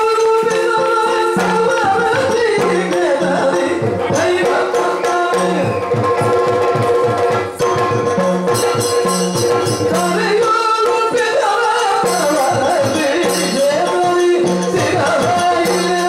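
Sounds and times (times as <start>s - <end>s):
person singing: 0.0s - 5.9s
drum strokes: 0.0s - 16.0s
jingling hand cymbals: 0.0s - 16.0s.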